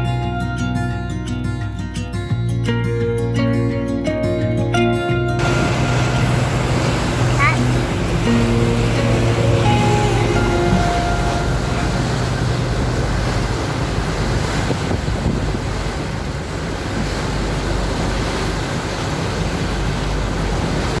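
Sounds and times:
low rumble: 0:05.4 - 0:18.0
water churning in wake: 0:05.4 - 0:21.0
wind on microphone: 0:05.4 - 0:21.0.

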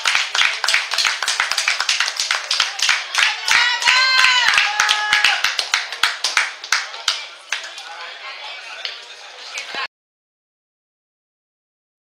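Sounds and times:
spectators clapping: 0:00.0 - 0:08.1.

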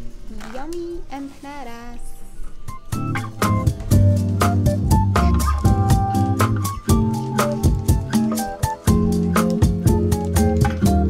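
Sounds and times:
background music with bass line: 0:02.7 - 0:11.0.

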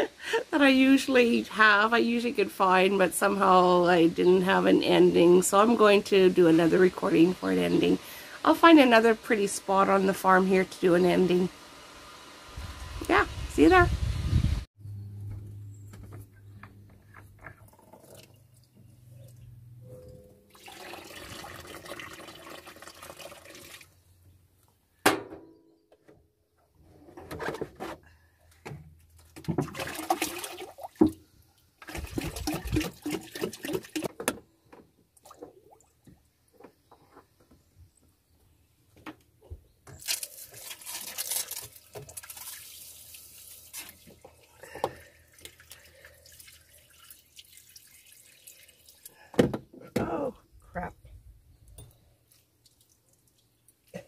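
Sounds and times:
water pouring and splashing: 0:20.5 - 0:24.0, 0:29.2 - 0:34.2, 0:40.0 - 0:49.3, 0:52.3 - 0:53.9
water dripping: 0:40.5 - 0:49.3, 0:51.7 - 0:54.0.

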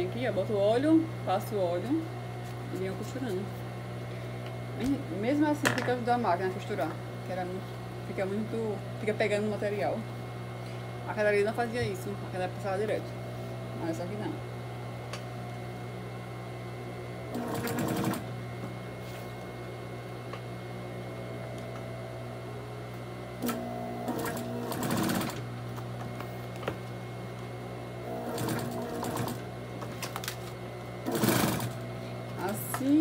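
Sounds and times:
sewing machine motor humming: 0:17.3 - 0:18.3, 0:23.4 - 0:25.5, 0:28.0 - 0:29.5, 0:31.0 - 0:31.8
sewing machine stitching: 0:17.4 - 0:18.2, 0:23.4 - 0:25.4, 0:28.1 - 0:29.4, 0:31.1 - 0:31.8.

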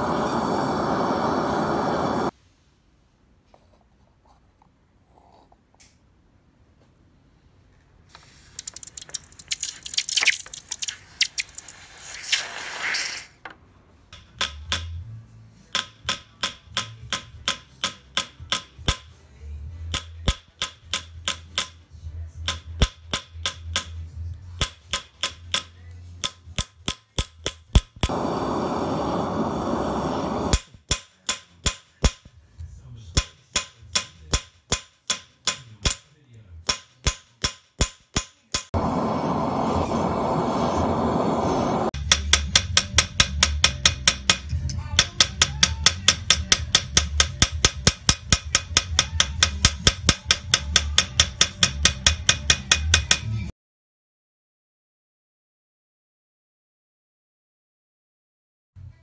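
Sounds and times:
hissing: 0:00.0 - 0:02.3, 0:08.2 - 0:13.4, 0:28.0 - 0:30.6, 0:38.8 - 0:42.0
hammer striking metal: 0:14.2 - 0:15.0, 0:15.7 - 0:19.1, 0:24.6 - 0:28.7, 0:42.0 - 0:53.4
steady rushing noise: 0:38.8 - 0:41.9.

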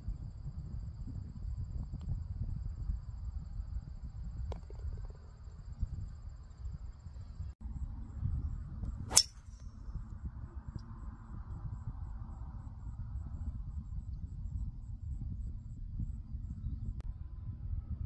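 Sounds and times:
crickets chirping: 0:00.0 - 0:16.9
golf driver striking ball: 0:09.1 - 0:09.4.

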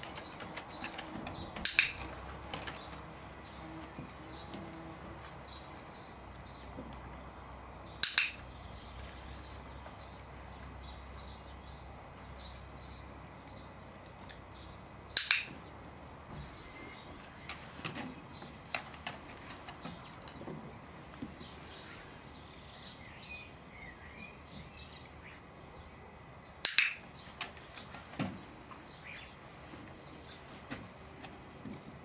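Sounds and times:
faint birdsong: 0:00.0 - 0:32.0
sharp double clicks: 0:01.6 - 0:02.8, 0:08.0 - 0:08.5, 0:15.1 - 0:15.7, 0:26.6 - 0:27.5.

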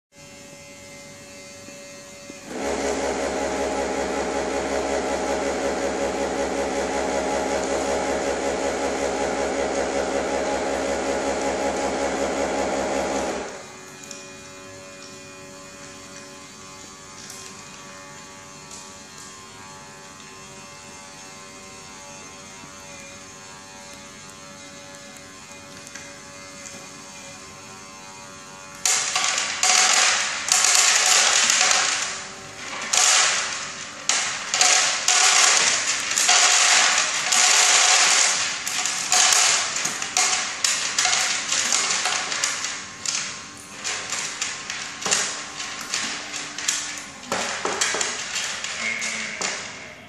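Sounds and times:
dispenser motor droning: 0:02.5 - 0:13.8.

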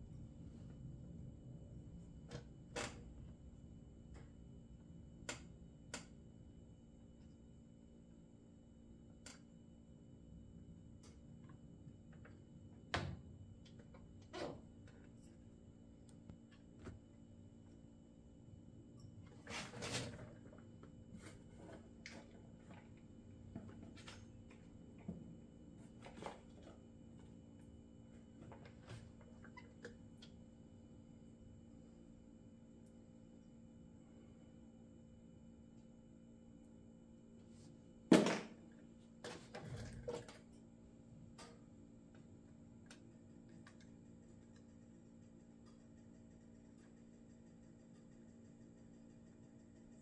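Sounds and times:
steady low hum: 0:00.0 - 0:39.3.

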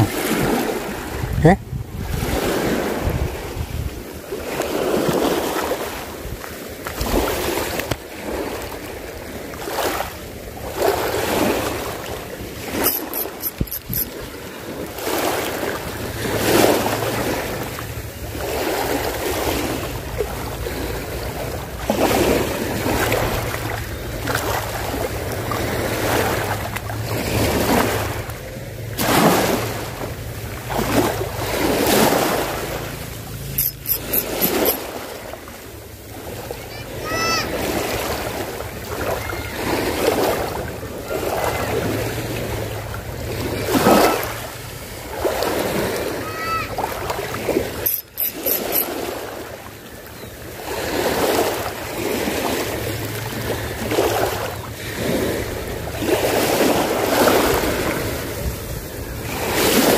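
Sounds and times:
wind buffeting microphone: 0:00.0 - 0:04.1
small waves washing on shore: 0:00.0 - 0:59.9.

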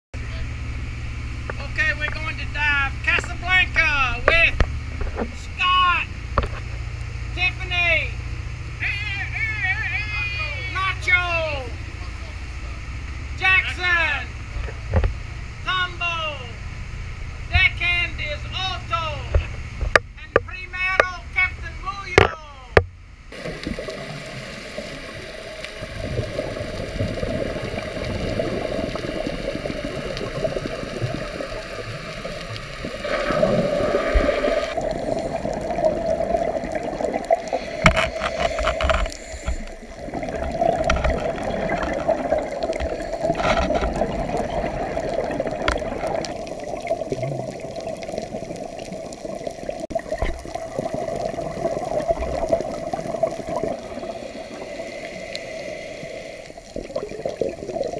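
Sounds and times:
muffled underwater water rush: 0:00.2 - 0:21.9, 0:22.8 - 0:57.9
clicks underwater: 0:19.3 - 0:21.1, 0:22.1 - 0:54.2
scuba bubbles: 0:23.3 - 0:57.9.

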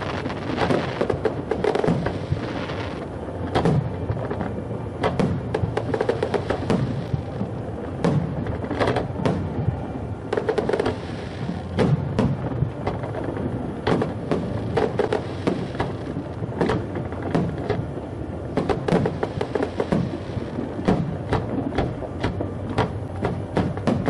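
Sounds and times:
firework shells bursting: 0:00.0 - 0:04.4.

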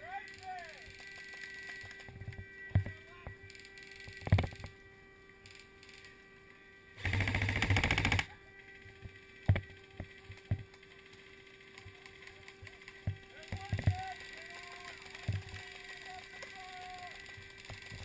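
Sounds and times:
airsoft gun full-auto burst: 0:07.0 - 0:18.0.

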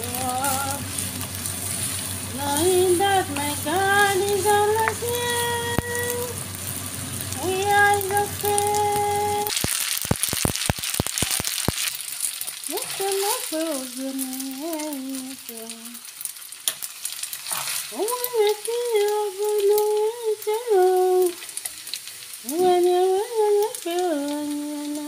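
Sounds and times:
person humming a slow tune: 0:00.0 - 0:01.0, 0:02.3 - 0:06.4, 0:07.3 - 0:09.5, 0:12.7 - 0:16.0, 0:17.9 - 0:21.4, 0:22.4 - 0:25.0
faint hiss: 0:00.0 - 0:16.3.

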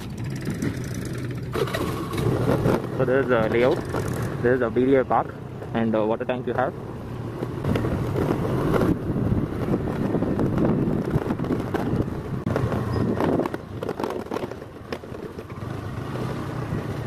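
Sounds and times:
vehicle engine and road rumble: 0:00.0 - 0:17.0
wind on microphone: 0:07.6 - 0:15.0.

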